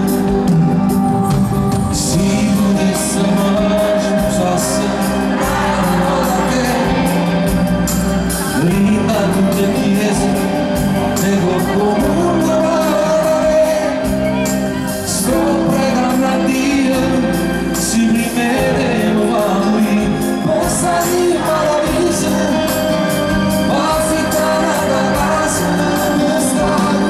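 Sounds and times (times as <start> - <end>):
live pop band: 0.0 - 27.0
man singing into microphone: 1.9 - 7.6, 8.4 - 27.0.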